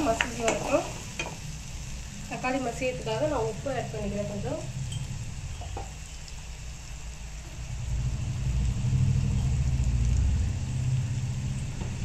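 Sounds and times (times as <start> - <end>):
low rumble: 2.0 - 6.1, 7.2 - 12.0.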